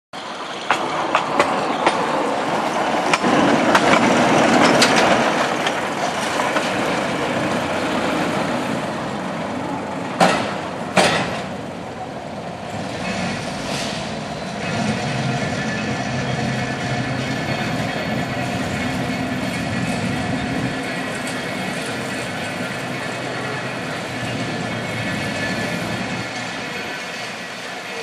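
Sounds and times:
wheels clicking over rail joints: 0.2 - 8.9
rail motor car running: 0.2 - 28.0.

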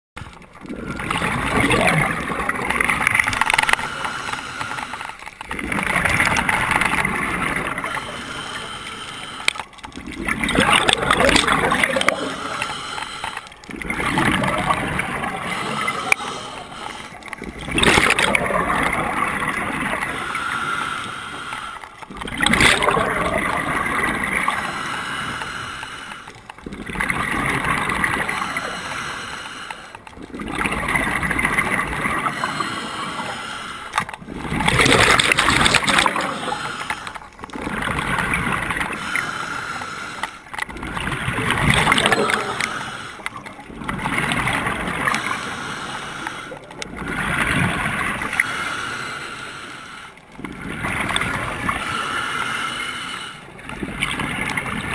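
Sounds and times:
exhaled bubbles gurgling: 0.2 - 54.9
regulator inhale hiss: 3.5 - 5.3, 7.8 - 9.7, 12.2 - 13.6, 15.4 - 17.4, 20.0 - 22.0, 24.4 - 26.4, 28.2 - 30.1, 32.2 - 34.1, 36.0 - 37.4, 38.9 - 40.6, 41.9 - 43.5, 45.0 - 46.8, 48.3 - 50.3, 51.7 - 53.6.

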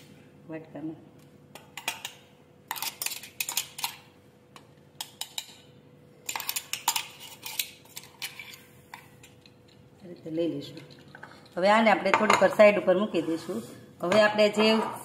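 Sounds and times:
spoon scraping a steel jar: 6.3 - 8.7.

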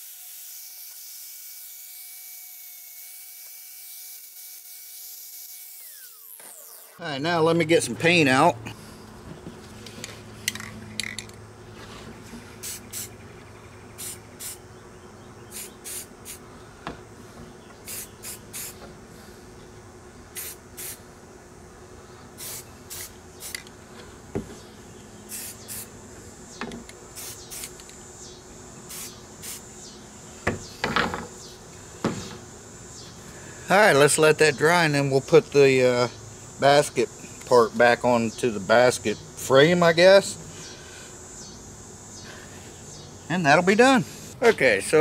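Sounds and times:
spray-paint can spraying: 12.6 - 13.1, 14.0 - 14.6, 15.5 - 16.4, 17.9 - 18.8, 20.4 - 21.0, 22.4 - 23.6, 25.3 - 25.9, 27.2 - 27.8, 28.9 - 29.6.

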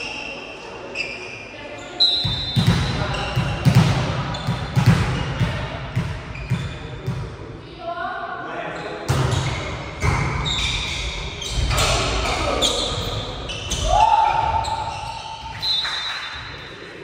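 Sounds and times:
shoe squeaks on court floor: 0.0 - 5.4, 6.2 - 7.0, 8.8 - 16.5.

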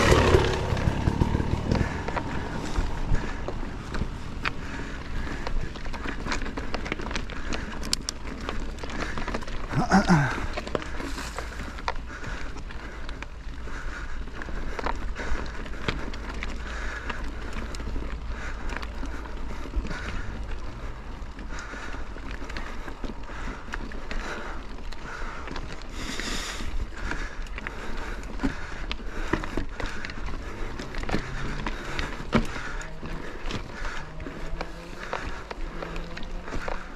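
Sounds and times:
wind rumbling on microphone: 0.0 - 9.7
bike knocks and rattles: 0.0 - 12.9, 21.4 - 36.9
bike tyre rumble: 0.0 - 36.9.

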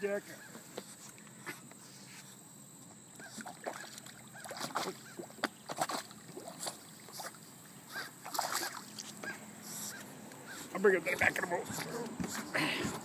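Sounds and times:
water splashing and sloshing: 3.2 - 13.0.

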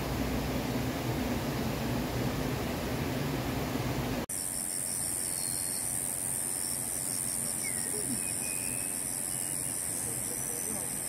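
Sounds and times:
rushing noise with low hum: 0.0 - 4.3
brief higher insect calls: 4.3 - 11.0
crickets chirping: 4.3 - 11.0.

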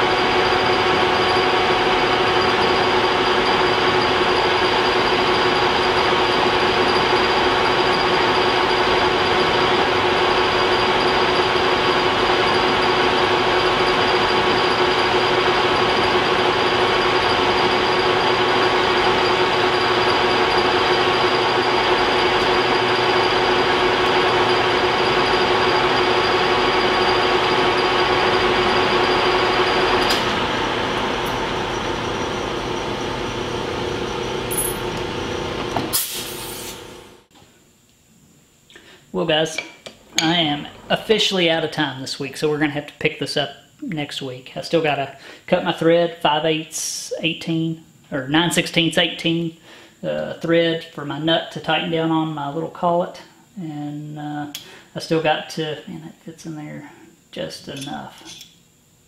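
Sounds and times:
metal lathe whining: 0.0 - 36.0
lathe running down: 0.0 - 37.3.

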